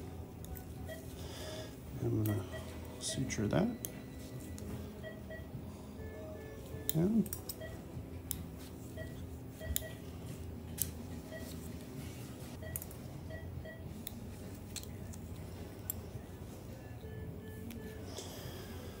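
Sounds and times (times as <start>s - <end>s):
monitor beeps: 0.8s - 1.1s, 2.1s - 7.9s, 8.8s - 10.1s, 11.2s - 11.7s, 12.6s - 14.0s
surgical instruments clicking: 6.8s - 8.5s, 14.0s - 16.0s.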